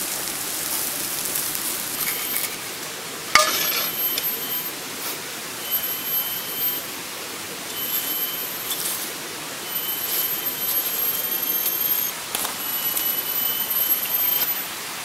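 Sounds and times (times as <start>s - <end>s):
steady hiss: 0.0s - 15.0s
metal utensil clinking on skillet: 3.3s - 4.5s
high thin tone: 3.4s - 4.8s.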